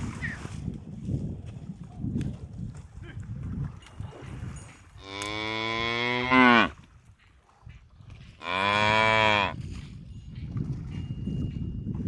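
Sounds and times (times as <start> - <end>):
water buffalo mooing: 5.0 - 6.8, 8.4 - 9.6.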